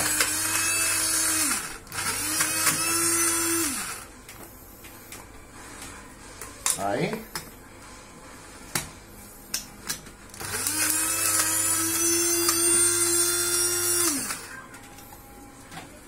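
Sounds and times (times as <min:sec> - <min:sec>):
electric kitchen grinder whining: 0:00.0 - 0:04.2, 0:10.3 - 0:14.7.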